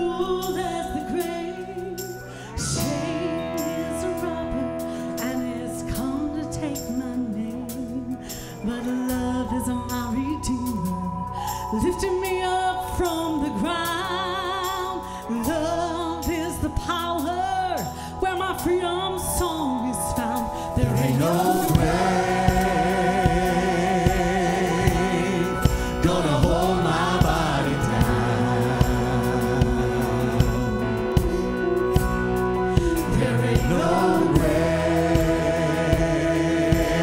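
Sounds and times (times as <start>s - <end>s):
band playing: 0.0s - 8.2s, 20.8s - 37.0s
woman singing lead: 0.0s - 37.0s
backing voices singing: 20.8s - 37.0s.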